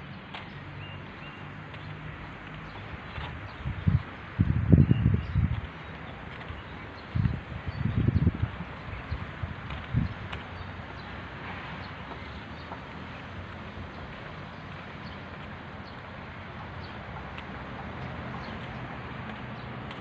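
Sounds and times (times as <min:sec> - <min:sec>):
distant road traffic hum: 0:00.0 - 0:20.0
wind gust on microphone: 0:02.9 - 0:05.9, 0:07.0 - 0:10.4.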